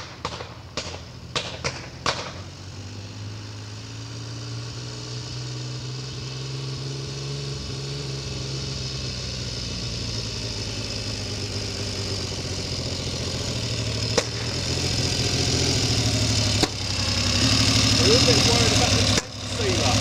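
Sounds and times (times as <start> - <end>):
sharp crack: 0.0 - 2.6, 12.8 - 20.0
motorcycle engine at low revs: 0.0 - 20.0.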